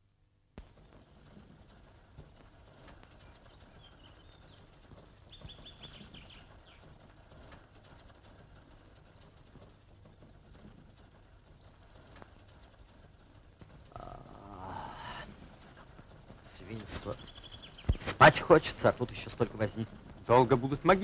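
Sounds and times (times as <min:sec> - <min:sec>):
old film soundtrack hiss: 0:00.6 - 0:21.0
faint bird chirps: 0:02.5 - 0:07.4, 0:11.5 - 0:12.8, 0:13.9 - 0:15.9, 0:16.5 - 0:18.3.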